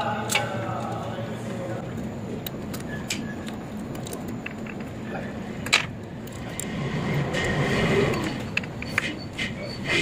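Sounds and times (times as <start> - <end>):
machinery hum: 0.0 - 10.0.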